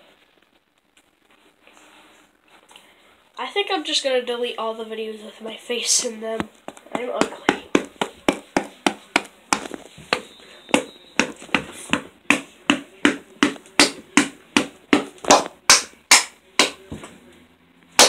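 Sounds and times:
sharp hand slaps: 0:12.3 - 0:16.8.

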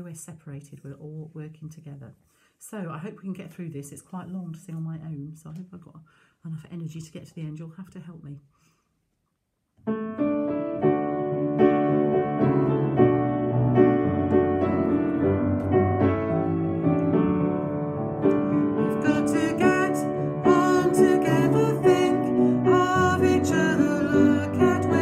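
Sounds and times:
piano chords and melody: 0:09.8 - 0:25.0.

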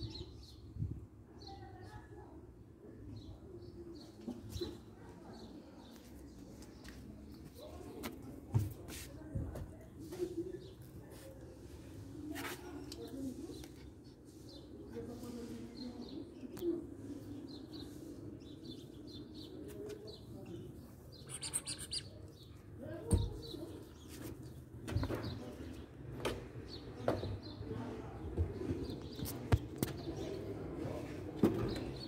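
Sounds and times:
puppy chirps and squeaks: 0:21.2 - 0:22.2.

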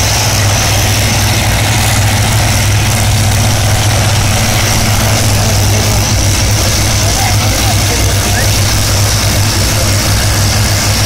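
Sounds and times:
drag racing car engine running: 0:00.0 - 0:11.0.

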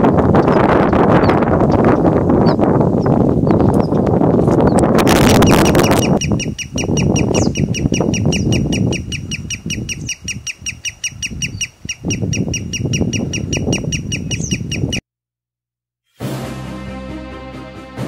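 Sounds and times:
sandpiper calling: 0:04.6 - 0:15.0.

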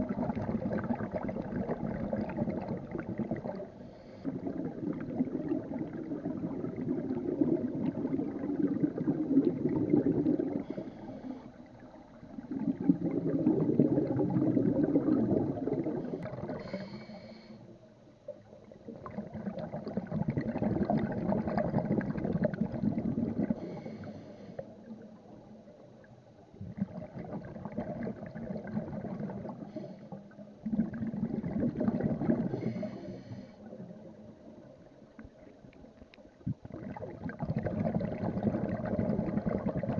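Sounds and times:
bubbling exhaled air underwater: 0:00.0 - 0:17.5, 0:18.3 - 0:39.9
regulator inhalation hiss: 0:16.6 - 0:17.7.

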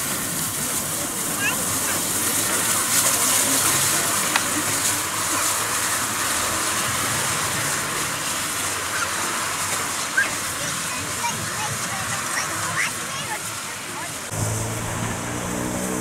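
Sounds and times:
steam hissing: 0:00.0 - 0:16.0
locomotive low rumble: 0:14.2 - 0:16.0.

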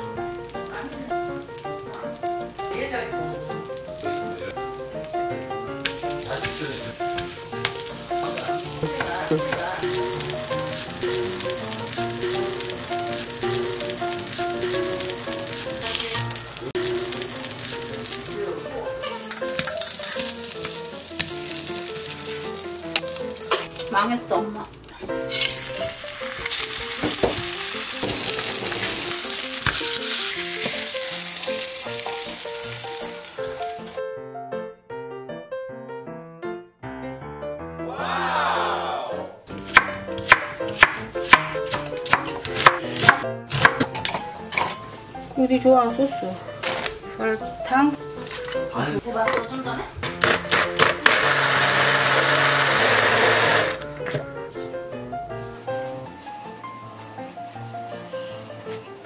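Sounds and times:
fish sizzling in a frying pan: 0:00.0 - 0:34.0
light background music: 0:00.0 - 0:34.0, 0:37.9 - 0:59.0.

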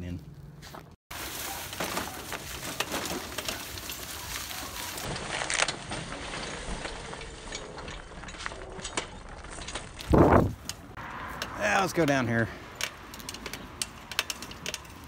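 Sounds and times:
cart rolling over leaves: 0:01.1 - 0:12.2
rattles and knocks from cart: 0:01.2 - 0:11.0, 0:12.8 - 0:15.0.

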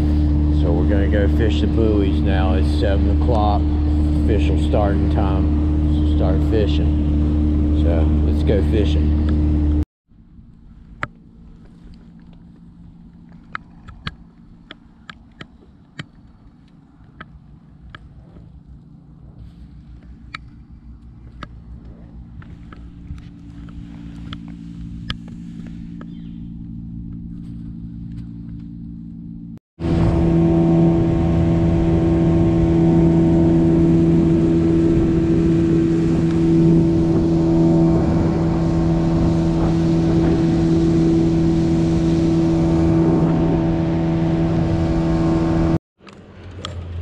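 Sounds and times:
boat motor running: 0:00.0 - 0:47.0
rush of wind and water: 0:29.8 - 0:45.8.

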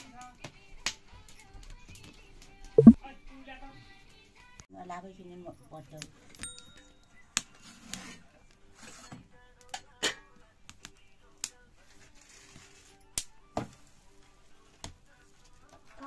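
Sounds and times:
firewood crackling and popping: 0:10.6 - 0:13.9.

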